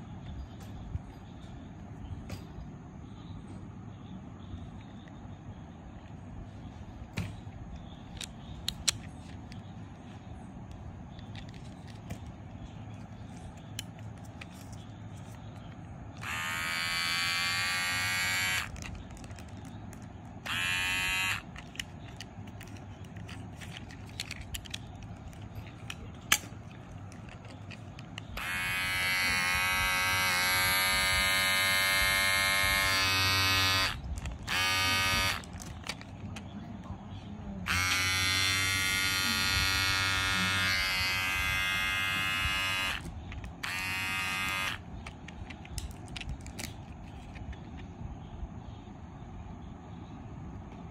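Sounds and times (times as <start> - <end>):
hair clipper buzzing: 16.2 - 18.9, 20.4 - 21.6, 28.3 - 35.9, 37.6 - 44.8.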